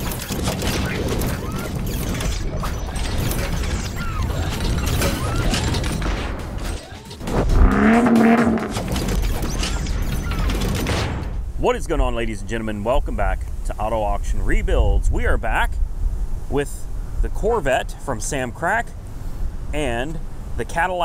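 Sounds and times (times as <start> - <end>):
loud humming: 0.0 - 9.5
mechanical clicking and ratcheting: 0.0 - 11.2
low rumble: 7.2 - 9.2.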